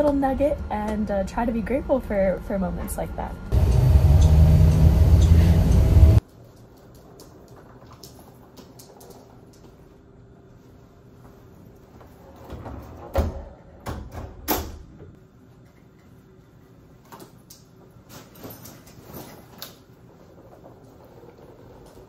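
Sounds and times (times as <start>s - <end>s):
luggage clicks and rattles: 6.2s - 9.8s, 17.1s - 22.0s
heavy door opening and swinging shut: 12.3s - 14.9s.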